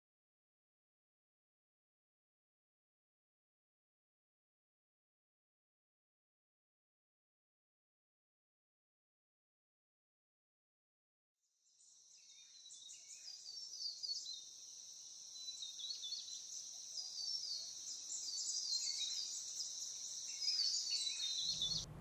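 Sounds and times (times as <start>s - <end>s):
high-pitched insect chorus: 11.8s - 21.8s
short bird chirps: 11.8s - 21.9s.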